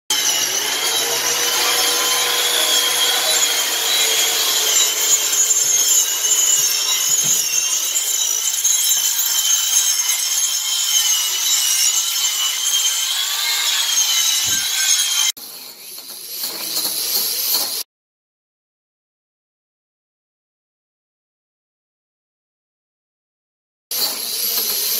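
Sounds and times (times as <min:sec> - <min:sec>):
angle grinder cutting wood: 0:00.1 - 0:17.8, 0:23.9 - 0:24.9.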